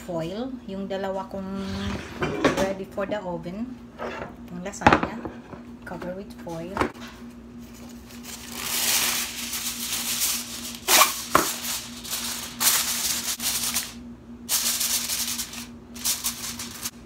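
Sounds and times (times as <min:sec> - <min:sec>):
aluminium foil crinkling: 0:07.6 - 0:17.0.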